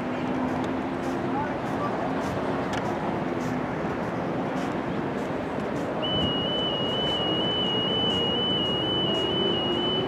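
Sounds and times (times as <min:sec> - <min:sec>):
outdoor noise: 0:00.0 - 0:10.0
long high-pitched whistle blast: 0:06.0 - 0:10.0.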